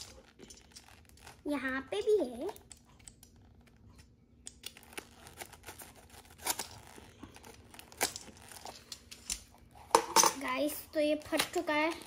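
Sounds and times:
packaging tearing and crinkling: 0:00.0 - 0:01.5, 0:04.5 - 0:08.9.

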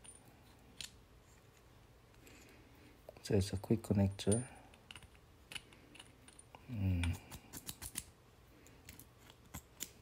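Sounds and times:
small metal clicks: 0:04.2 - 0:10.0
person murmuring: 0:06.6 - 0:07.3.

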